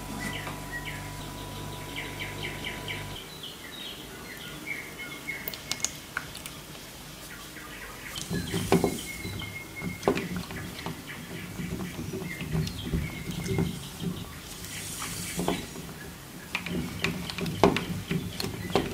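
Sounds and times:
steady hum: 0.0 - 3.3.

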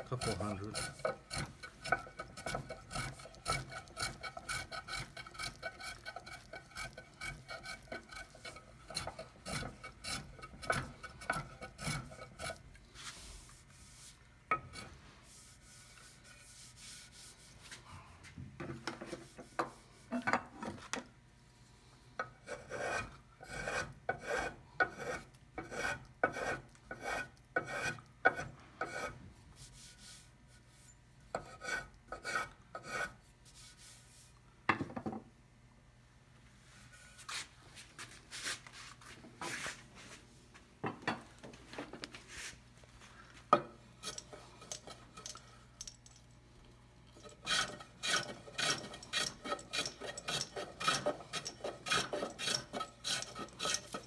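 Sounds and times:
hand plane shaving wood: 0.0 - 13.2, 22.5 - 29.1, 47.4 - 54.0.

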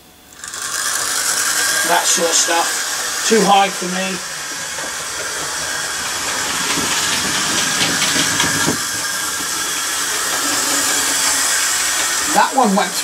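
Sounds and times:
model train whirring: 0.0 - 13.0
wheels clicking over rail joints: 0.3 - 13.0.

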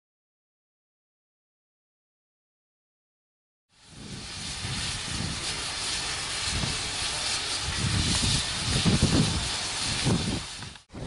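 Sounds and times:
steam locomotive hissing: 3.7 - 11.0.

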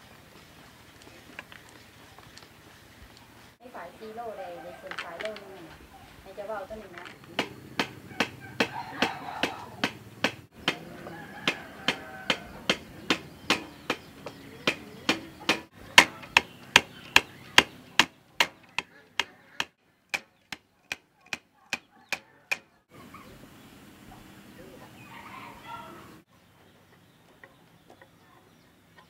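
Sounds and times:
stick beating cotton in basket: 7.0 - 22.7.

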